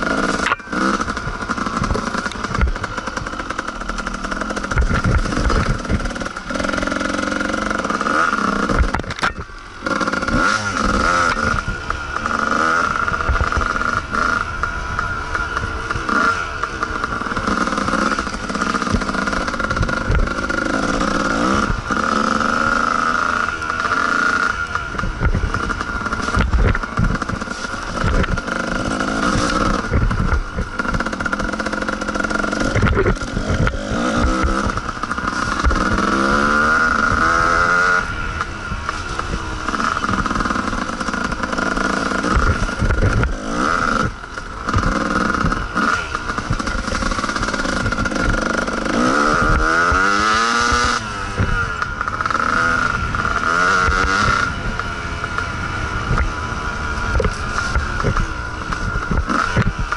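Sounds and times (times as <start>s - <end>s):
knocks and rattles: 0.0s - 12.6s
dirt bike engine revving: 0.0s - 59.9s.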